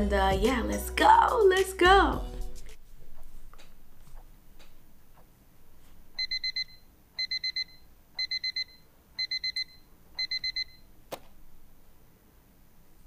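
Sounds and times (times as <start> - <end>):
alarm clock beeping: 6.2 - 10.9.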